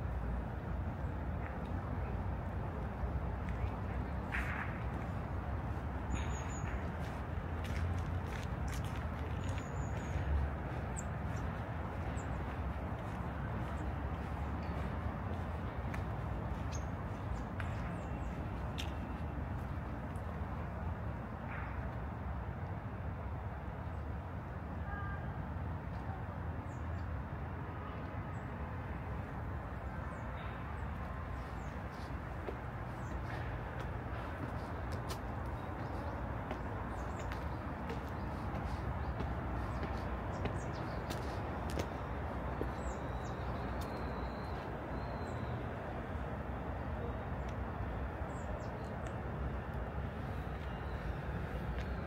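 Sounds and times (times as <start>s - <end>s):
distant city traffic hum: 0.0s - 52.0s
birds chirping: 5.0s - 19.7s, 29.8s - 46.0s.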